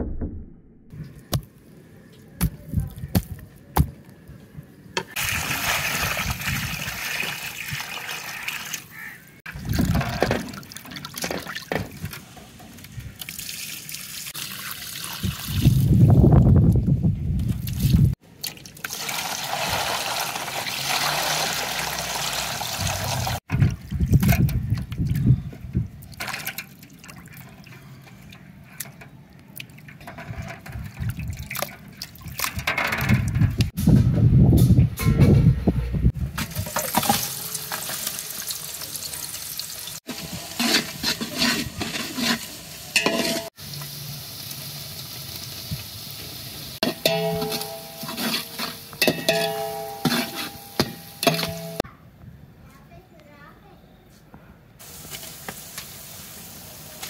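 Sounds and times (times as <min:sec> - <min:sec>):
water running and pouring: 0:05.2 - 0:12.3, 0:13.2 - 0:16.0, 0:17.7 - 0:23.5, 0:36.4 - 0:51.8.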